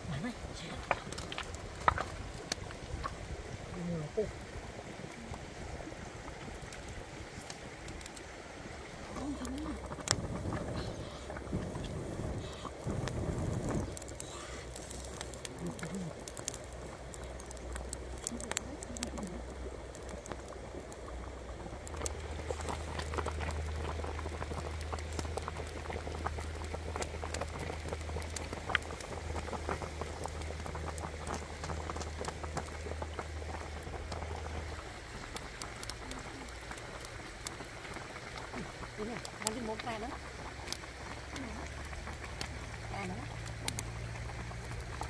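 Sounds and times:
soup boiling and bubbling: 0:00.0 - 0:45.0.

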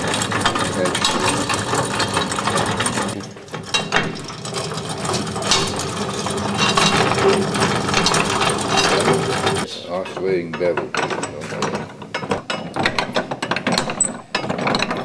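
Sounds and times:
hand washing machine gears clattering: 0:00.0 - 0:15.0.

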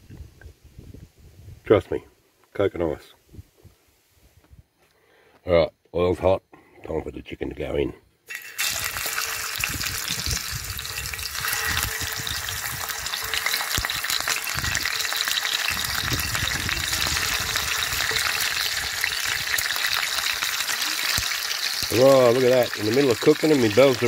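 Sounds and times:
chicken frying in hot oil: 0:08.3 - 0:24.0.

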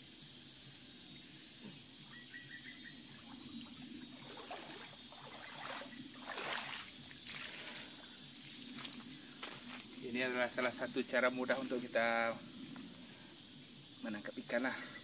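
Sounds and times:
boots splashing through stream: 0:04.2 - 0:07.8.

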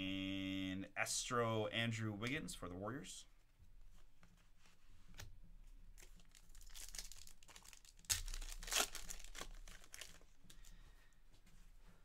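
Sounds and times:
foil wrapper crinkling and tearing: 0:06.0 - 0:10.7.

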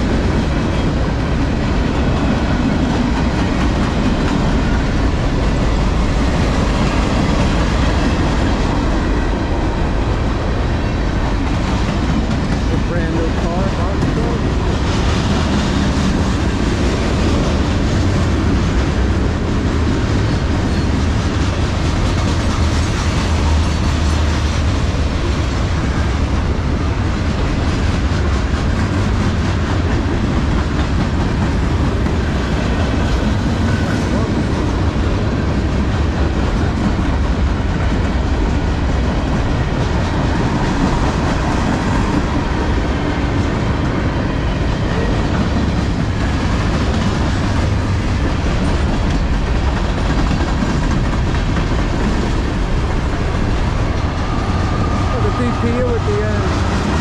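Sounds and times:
clickety-clack over rail joints: 0:00.0 - 0:57.0
train wheels rumbling on rails: 0:00.0 - 0:57.0.

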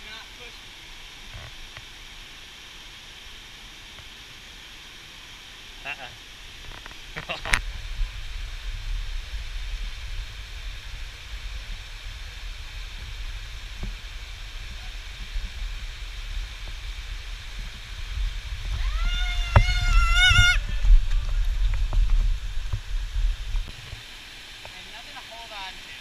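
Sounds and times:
creek water rushing over rocks: 0:00.0 - 0:26.0
wind rumble: 0:06.6 - 0:24.0
high-pitched held cry: 0:18.8 - 0:20.7.

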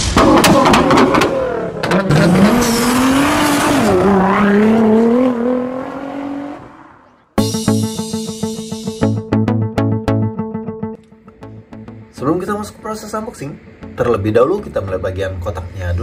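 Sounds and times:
exhaust pops and cracks: 0:00.0 - 0:02.1
sports car engine revving: 0:00.2 - 0:07.0.

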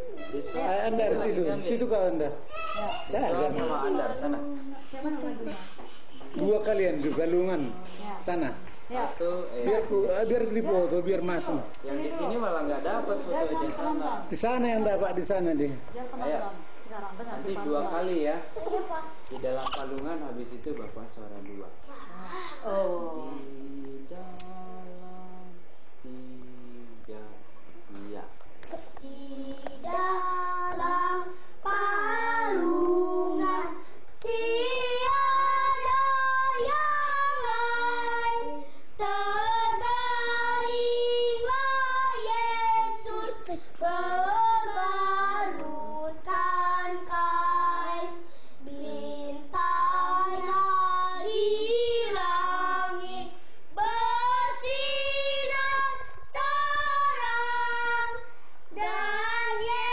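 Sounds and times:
child singing unaccompanied: 0:28.7 - 0:59.9.

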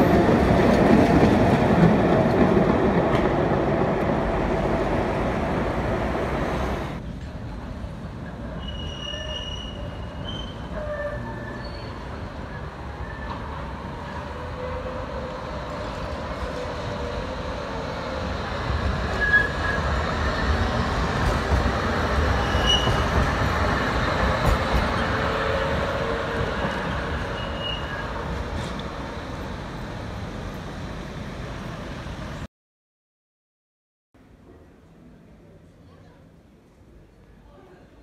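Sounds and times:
tram wheels rumbling on rails: 0:00.0 - 0:32.4
high wheel squeaks: 0:08.6 - 0:13.5, 0:22.3 - 0:23.1, 0:26.6 - 0:28.2.

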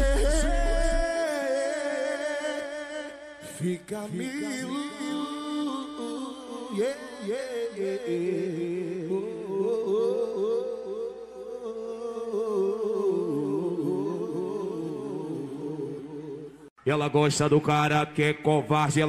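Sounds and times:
wordless singing over sustained tones: 0:00.0 - 0:02.8.

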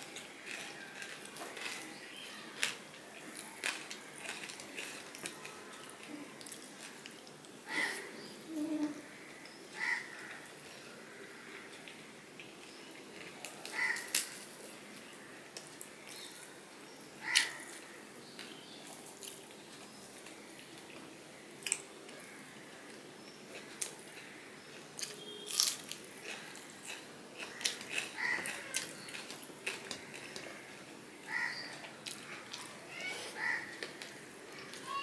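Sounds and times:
fingers picking at food on a plate: 0:23.5 - 0:34.9.

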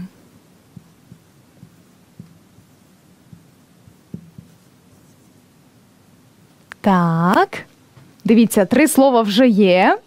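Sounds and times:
low steady hum: 0:00.0 - 0:10.0
marker tapping on whiteboard: 0:00.7 - 0:05.2.

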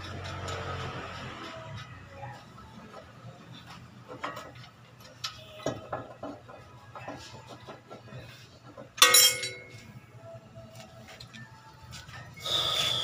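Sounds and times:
loud ringing metal clang: 0:09.0 - 0:09.8.

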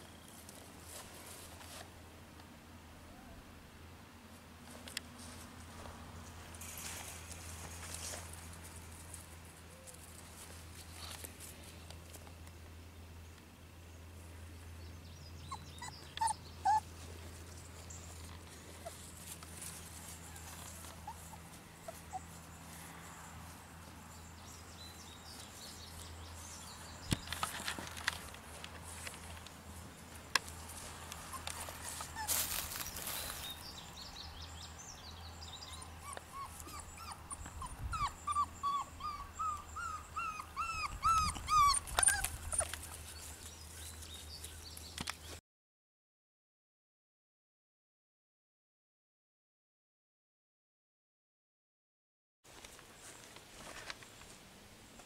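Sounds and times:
sharp rustles: 0:06.5 - 0:12.2
puppy whining and yelping: 0:15.4 - 0:17.0, 0:20.4 - 0:22.6, 0:31.2 - 0:32.4, 0:35.6 - 0:43.0.

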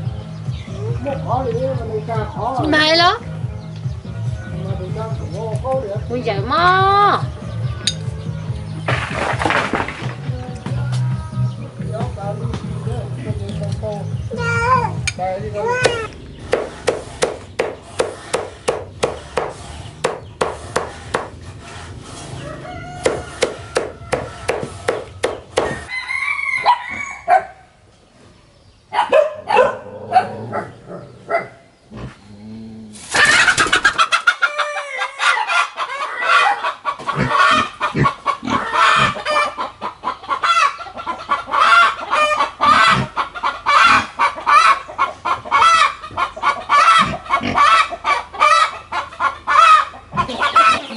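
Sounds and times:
chickens clucking: 0:00.0 - 0:50.9
hen clucking loudly: 0:14.4 - 0:27.2, 0:33.1 - 0:50.9
knife chopping plants: 0:15.8 - 0:21.4, 0:23.0 - 0:25.9.

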